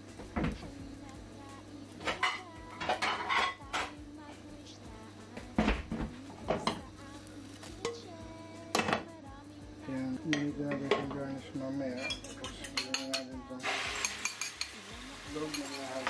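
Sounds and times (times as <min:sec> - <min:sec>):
utensil scraping a frying pan: 0:02.0 - 0:04.0.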